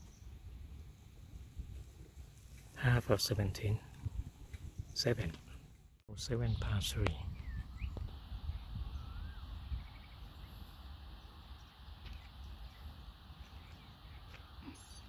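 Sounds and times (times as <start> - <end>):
faint bird calls: 12.0 - 15.0.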